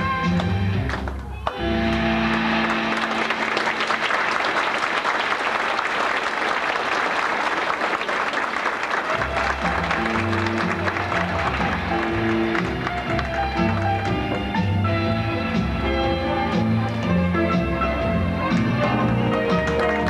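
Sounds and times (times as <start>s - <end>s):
recorded music: 0.0s - 3.9s, 9.1s - 20.0s
audience applause: 0.8s - 15.0s, 18.5s - 20.0s.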